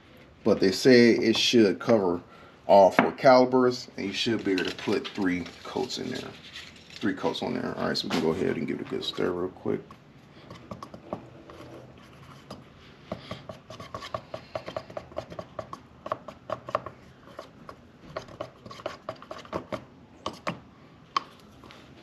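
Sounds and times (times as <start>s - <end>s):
stir stick scraping metal can: 4.5s - 7.7s, 18.2s - 20.4s.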